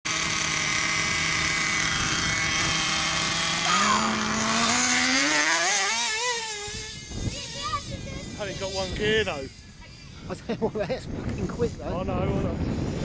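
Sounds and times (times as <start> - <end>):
model buggy engines idling and revving: 0.1 - 9.9.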